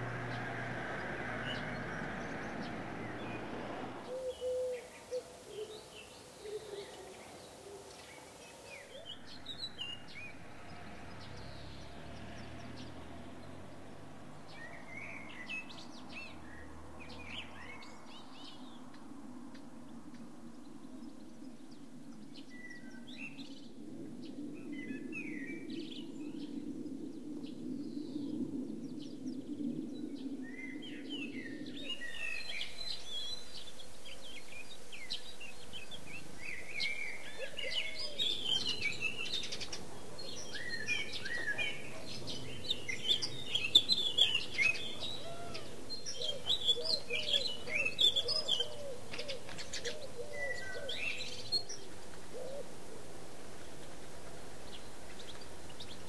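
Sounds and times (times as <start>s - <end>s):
dove cooing: 0.0s - 9.1s, 36.8s - 53.2s
songbirds chirping and twittering: 0.0s - 56.0s.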